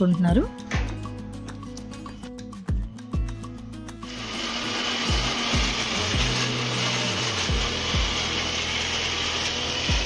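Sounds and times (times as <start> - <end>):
background music with a beat: 0.0 - 10.0
mixer grinder running: 3.8 - 10.0.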